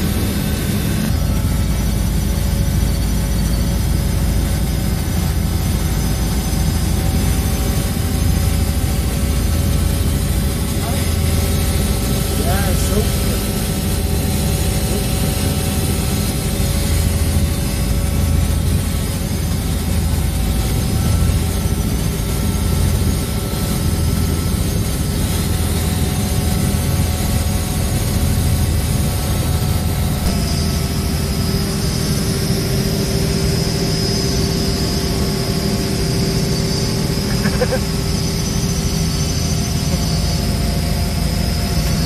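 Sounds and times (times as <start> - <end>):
helicopter engine and rotor drone: 0.0 - 42.0
high-pitched whine: 0.0 - 42.0.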